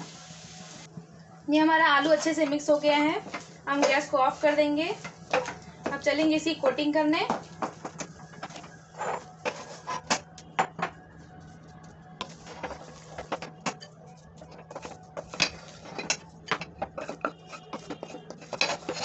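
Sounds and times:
steady low hum: 0.0s - 19.0s
wooden spatula scraping metal pan: 8.4s - 10.2s, 12.2s - 13.6s, 14.4s - 19.0s.

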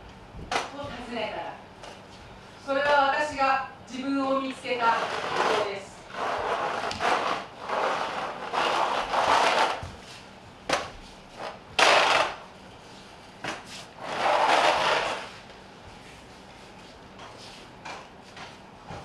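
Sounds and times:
bare feet scraping on concrete: 4.8s - 10.2s, 12.9s - 15.4s.

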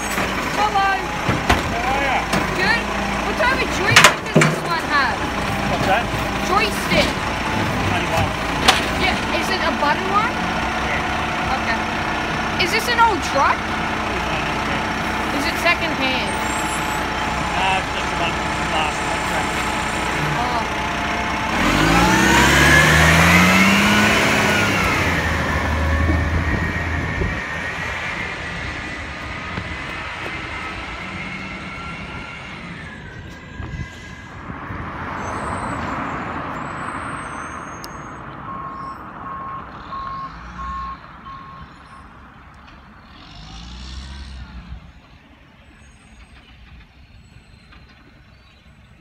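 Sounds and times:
truck diesel engine revving: 0.0s - 45.2s
short beeps: 37.6s - 41.6s.

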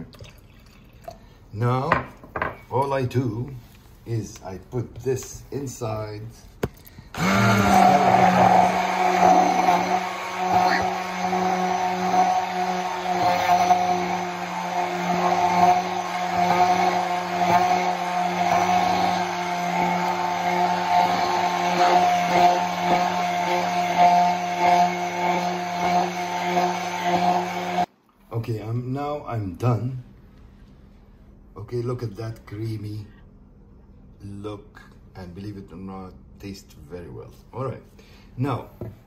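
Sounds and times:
immersion blender running: 7.1s - 27.9s.

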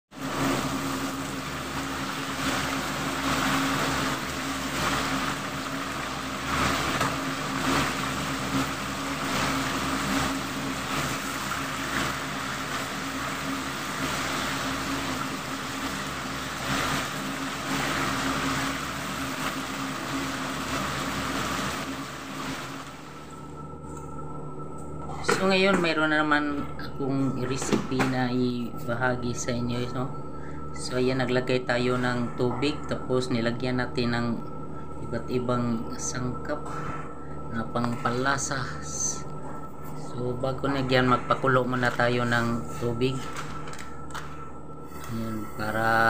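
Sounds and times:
oil sizzling and crackling: 0.1s - 23.4s.

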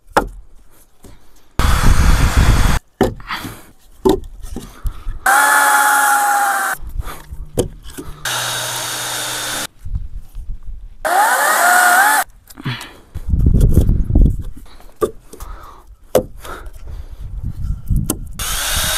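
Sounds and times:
power drill driving screws: 1.6s - 2.8s, 5.3s - 6.8s, 8.2s - 9.7s, 11.1s - 12.3s, 18.4s - 18.9s.

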